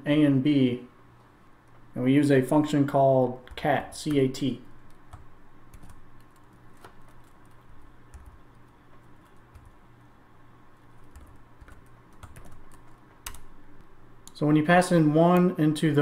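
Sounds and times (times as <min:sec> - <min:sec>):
low steady hum: 0:00.0 - 0:16.0
computer keyboard keystrokes: 0:04.9 - 0:09.8, 0:11.0 - 0:13.5.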